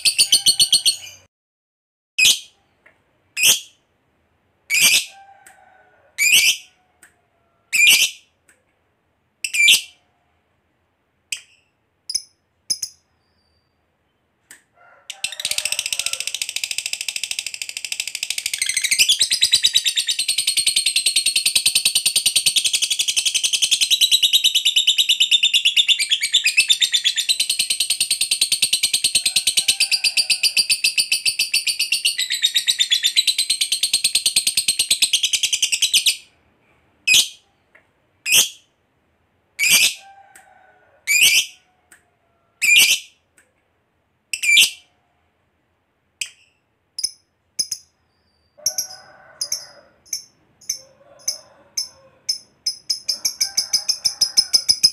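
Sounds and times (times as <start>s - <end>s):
lovebird chattering trill: 0.0s - 1.3s
lovebird sharp chirps: 11.3s - 13.8s.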